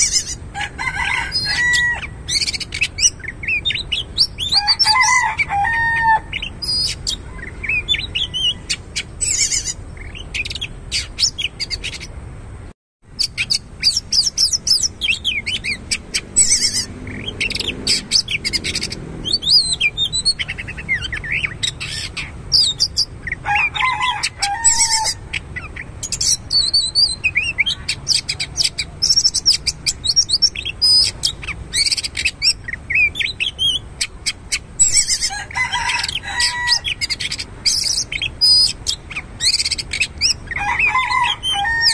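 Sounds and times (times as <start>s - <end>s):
bird singing whistles and chirps: 5.9s - 12.1s, 13.2s - 23.1s, 24.6s - 35.3s, 36.0s - 41.9s.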